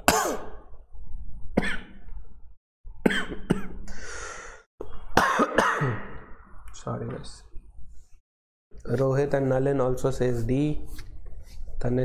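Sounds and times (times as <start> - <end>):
man coughing: 0.0 - 0.6, 3.1 - 3.8, 5.2 - 6.3.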